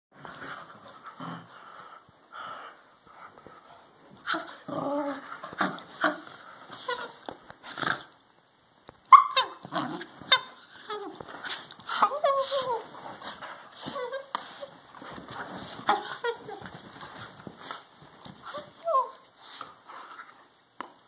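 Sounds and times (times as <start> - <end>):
puppy yelping: 9.1 - 9.6.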